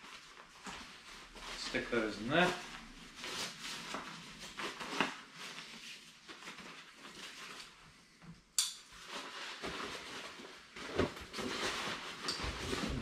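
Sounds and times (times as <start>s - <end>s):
nylon bag rustling: 0.0s - 7.8s, 8.9s - 13.0s.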